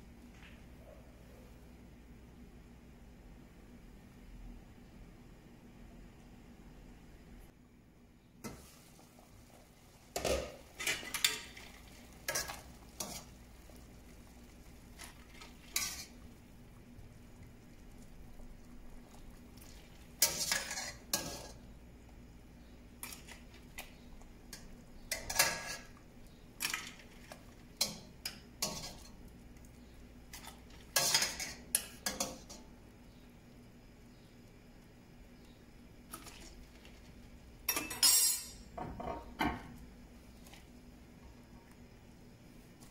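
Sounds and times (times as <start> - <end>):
boiling water hiss: 8.3 - 38.0.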